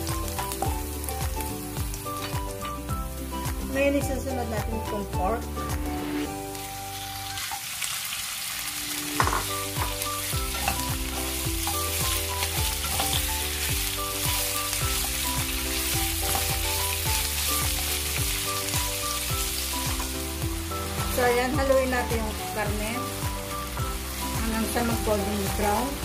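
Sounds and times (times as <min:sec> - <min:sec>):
background music with steady beat: 0:00.0 - 0:07.0, 0:09.0 - 0:26.0
meat sizzling in a wok: 0:00.0 - 0:26.0.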